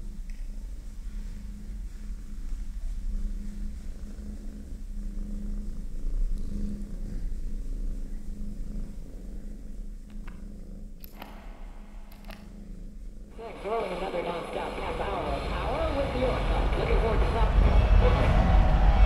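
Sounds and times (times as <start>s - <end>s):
low steady rumble: 0.0s - 19.0s
short clicks: 11.0s - 12.5s.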